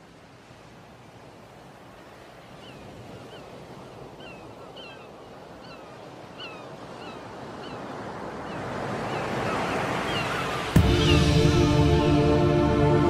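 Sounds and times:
sea surf washing: 5.6s - 13.0s.

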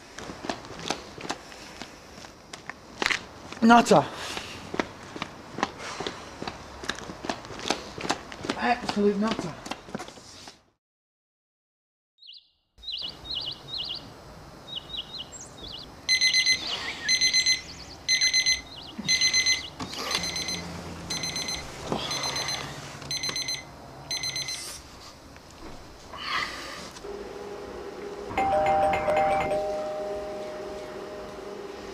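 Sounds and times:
birds chirping: 12.2s - 20.3s
alarm clock beeping: 16.1s - 24.7s, 27.1s - 31.9s.

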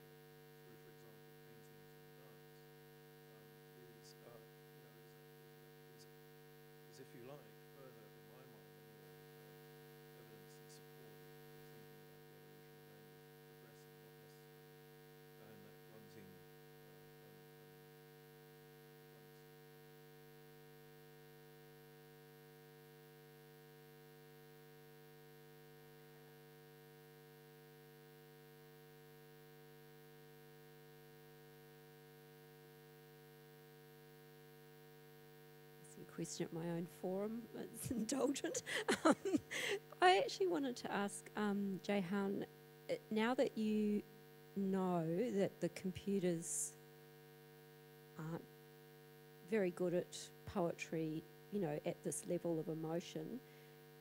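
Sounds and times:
electrical mains hum: 0.0s - 54.0s
faint voice: 3.4s - 5.1s, 7.0s - 8.6s, 15.4s - 16.3s, 36.0s - 44.0s.

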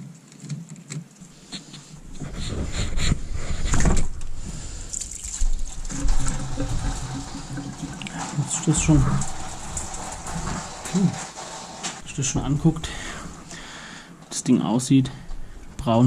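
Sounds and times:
coolant splashing and trickling: 4.0s - 12.4s.

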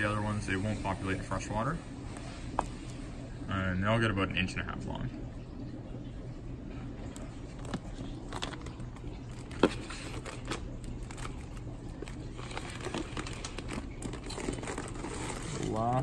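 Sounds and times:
steady low hum: 0.0s - 16.0s
plastic bags rustling: 7.5s - 16.0s.

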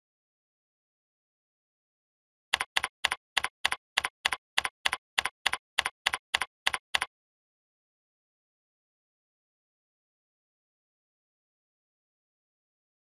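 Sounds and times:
computer keyboard typing: 2.6s - 7.1s.

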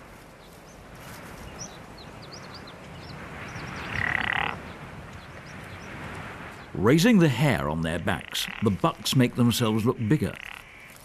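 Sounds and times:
pine branches rustling and scraping: 0.0s - 2.0s, 10.5s - 11.0s.

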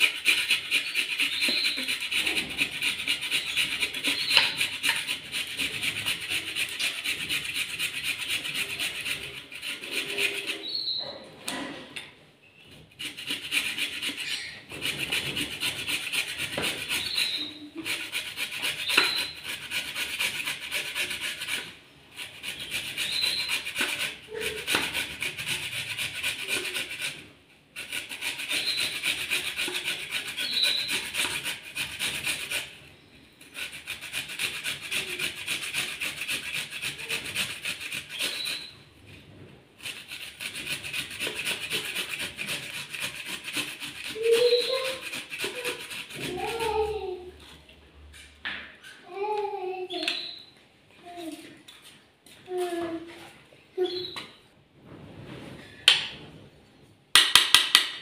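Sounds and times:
carrot rasping on metal grater: 0.0s - 11.0s, 12.8s - 38.8s, 39.8s - 47.3s.

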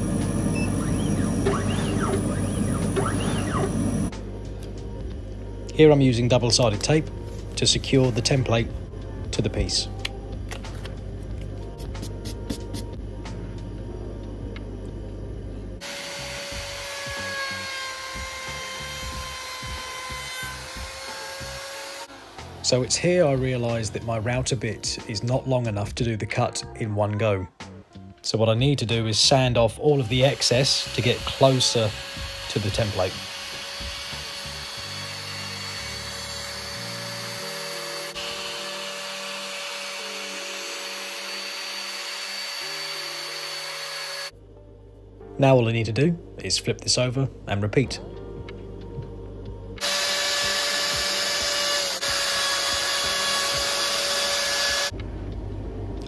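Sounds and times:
router whining: 0.0s - 4.2s, 15.8s - 23.4s, 30.0s - 44.3s, 49.8s - 55.0s
background music with bass: 0.0s - 38.3s, 44.3s - 56.0s.

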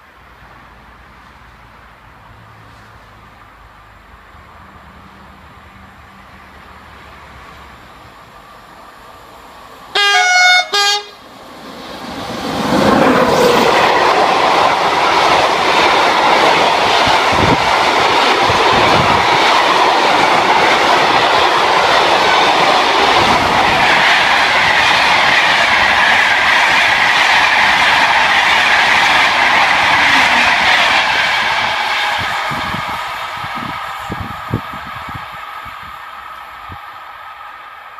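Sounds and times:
train wheels rolling on rails: 0.0s - 37.9s
locomotive horn: 9.9s - 11.2s.

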